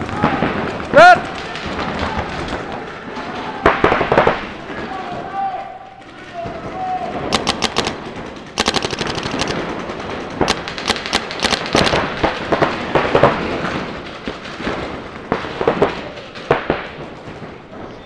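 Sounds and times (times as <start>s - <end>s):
paintball markers firing: 7.3s - 14.8s.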